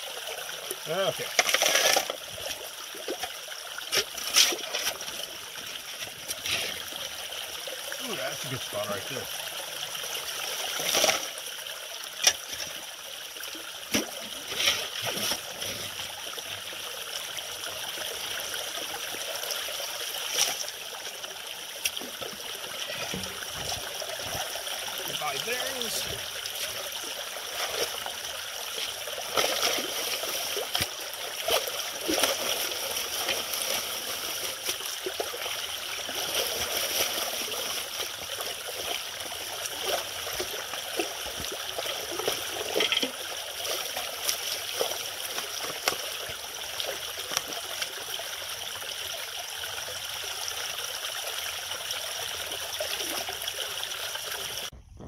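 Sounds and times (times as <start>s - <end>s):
running water trickling: 0.0s - 54.8s
small splashes and knocks: 1.1s - 5.2s, 10.4s - 11.5s, 13.8s - 16.2s, 20.2s - 20.8s, 21.8s - 48.1s.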